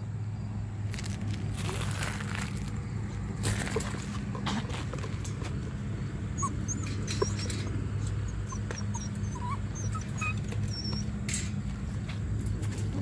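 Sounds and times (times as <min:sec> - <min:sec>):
puppies squeaking and whimpering: 0:06.2 - 0:11.5.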